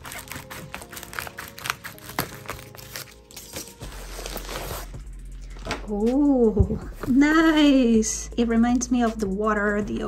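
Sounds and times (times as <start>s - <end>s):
scissors snipping plastic: 0.0s - 4.4s
plastic crinkling: 0.0s - 4.9s.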